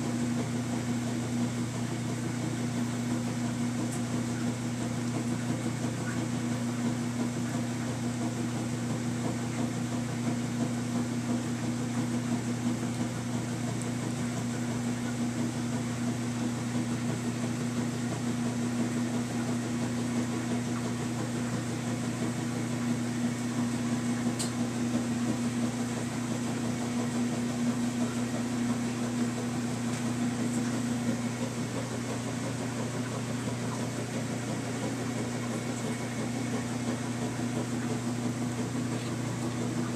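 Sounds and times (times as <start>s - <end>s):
machine hum with low drone: 0.0s - 39.9s.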